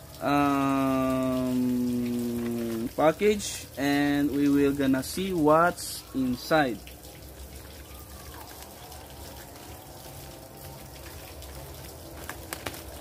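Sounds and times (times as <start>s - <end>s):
running water: 0.0s - 13.0s.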